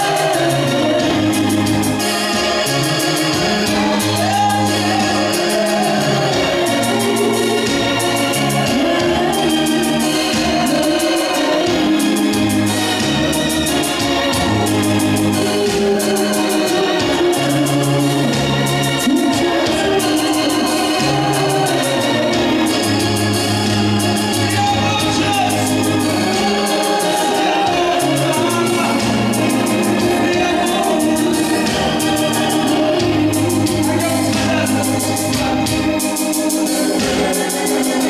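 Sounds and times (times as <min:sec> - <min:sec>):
man and women singing: 0:00.0 - 0:01.8, 0:03.7 - 0:13.2, 0:15.4 - 0:23.1, 0:24.3 - 0:35.0
electronic keyboard organ chords: 0:00.0 - 0:38.0.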